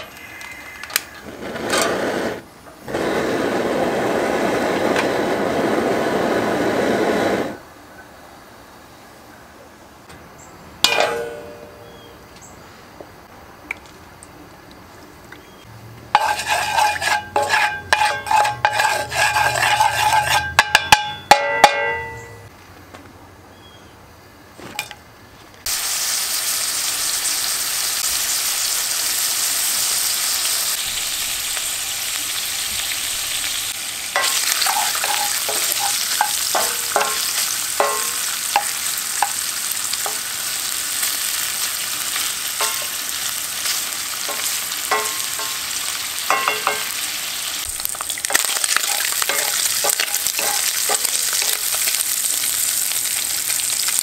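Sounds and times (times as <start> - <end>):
gas burner rushing: 0.0 - 7.6, 32.5 - 41.1
knocks and clatter in iron pot: 10.8 - 11.8, 16.2 - 22.4, 34.2 - 39.4, 42.6 - 43.0, 44.3 - 45.7, 46.3 - 47.0, 48.3 - 51.8
food sizzling in oil: 16.1 - 22.4, 25.6 - 54.0.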